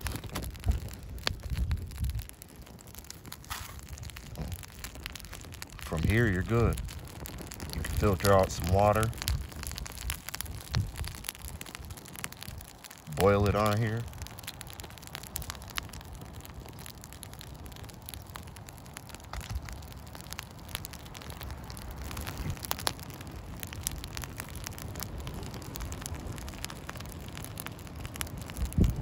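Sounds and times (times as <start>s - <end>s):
wind on microphone: 0.0s - 12.8s, 28.2s - 29.0s
campfire crackling and popping: 0.0s - 29.0s.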